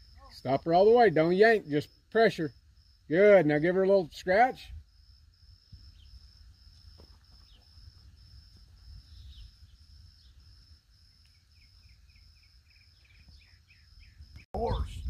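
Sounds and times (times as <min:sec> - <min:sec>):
bird chirping: 0:05.7 - 0:06.2, 0:07.0 - 0:07.9, 0:08.7 - 0:10.5, 0:11.1 - 0:15.0
low wind rumble: 0:07.7 - 0:10.9, 0:14.0 - 0:15.0.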